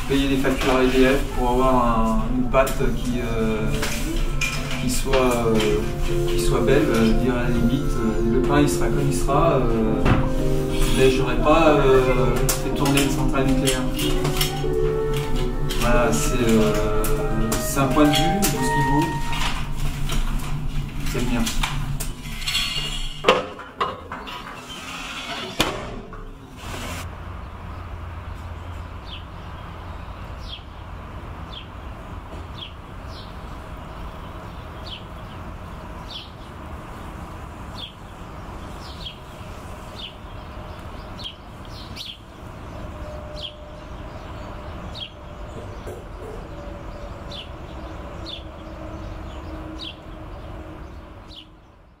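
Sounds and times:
low outdoor rumble: 25.9s - 41.6s.

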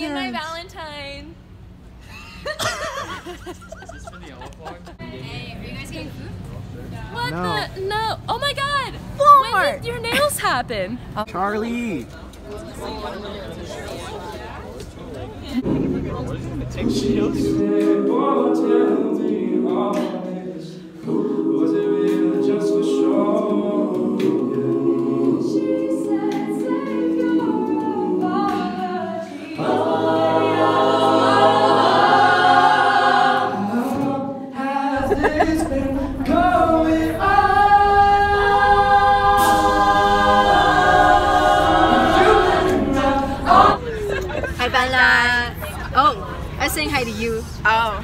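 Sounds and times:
a cappella group singing: 15.6s - 44.0s
low bass vocal part: 35.0s - 43.9s.

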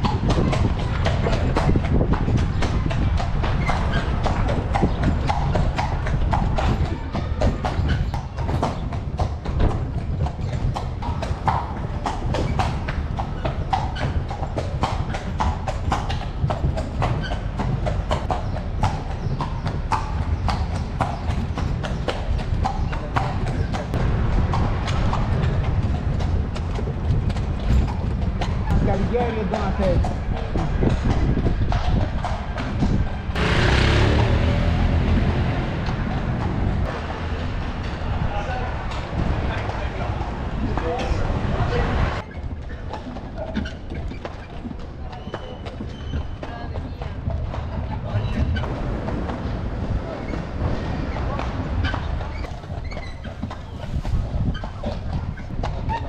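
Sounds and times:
horse hooves clip-clopping: 0.0s - 56.0s
low rumble: 23.8s - 29.0s, 30.1s - 42.2s.

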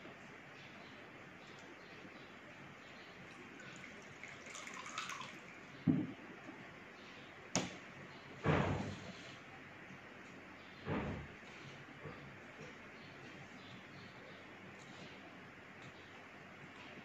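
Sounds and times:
water trickling into glass bowl: 3.2s - 5.7s
knocks on plastic tray: 5.9s - 6.1s.

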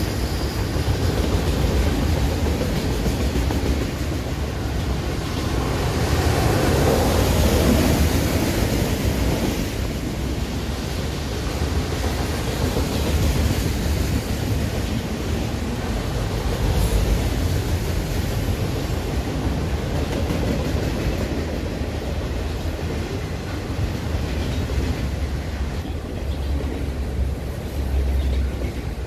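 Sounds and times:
freight train rolling past: 0.0s - 29.0s.

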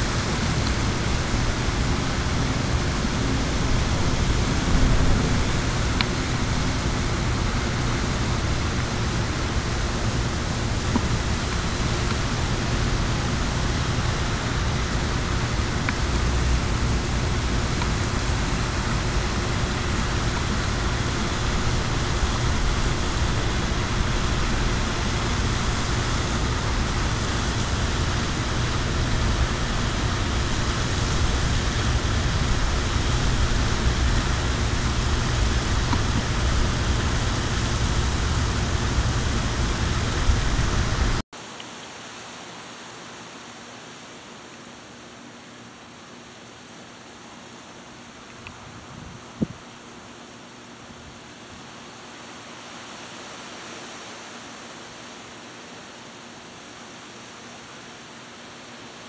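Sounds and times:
loud rushing noise with rumble: 0.0s - 41.2s.

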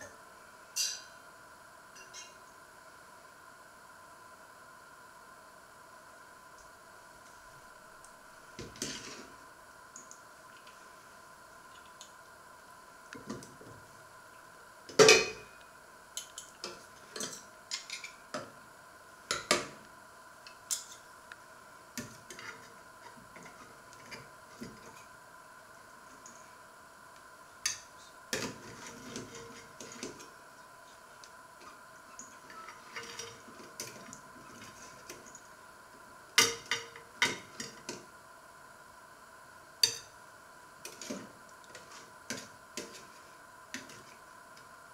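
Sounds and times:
faint steady whine: 0.0s - 44.9s
cutlery clinking on metal pans: 0.8s - 1.2s, 15.0s - 15.5s, 16.2s - 18.2s, 39.8s - 40.1s.

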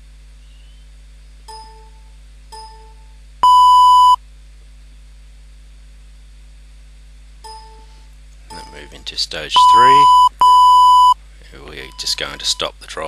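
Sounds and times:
loud high beep: 3.4s - 4.2s, 9.6s - 11.2s.

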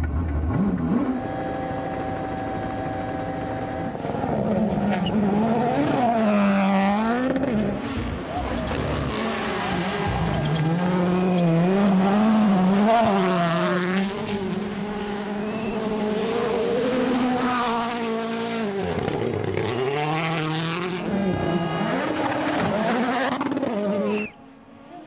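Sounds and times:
rally car engines revving: 0.0s - 24.9s.

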